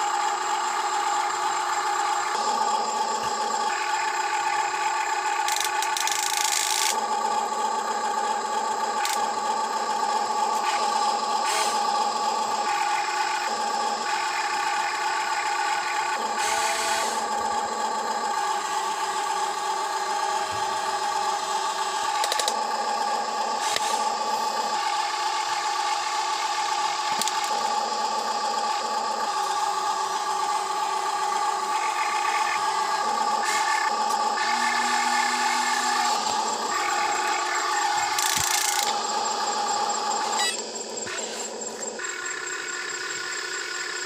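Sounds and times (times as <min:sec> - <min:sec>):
electric motors whining: 0:00.0 - 0:44.0.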